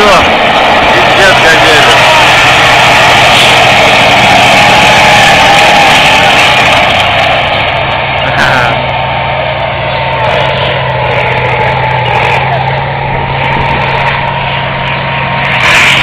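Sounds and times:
heavy vehicle engine running: 0.0 - 16.0
sharp bursts of noise: 0.0 - 16.0.

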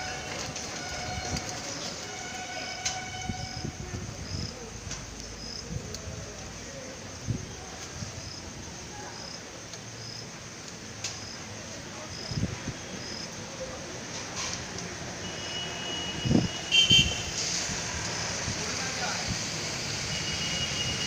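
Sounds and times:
insects chirping: 0.0 - 14.1
steady hiss: 16.7 - 21.0.

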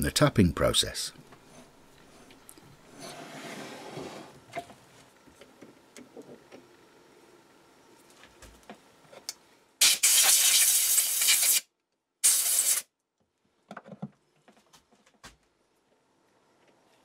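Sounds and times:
loud spraying hiss: 9.8 - 11.6, 12.2 - 12.8.

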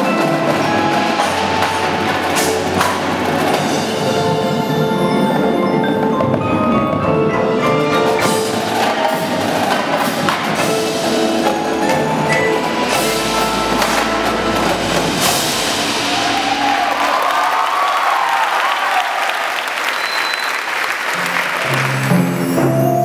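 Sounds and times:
mallet keyboards ringing: 0.0 - 15.8.

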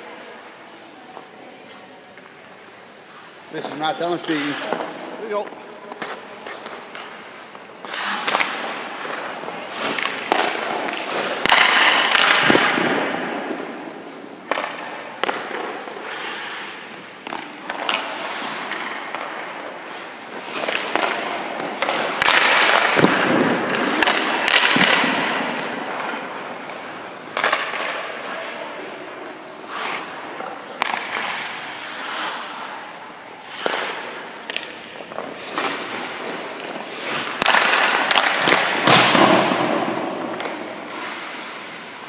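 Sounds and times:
skate blades scraping ice: 0.2 - 42.0
pucks cracking off sticks: 3.6 - 42.0.

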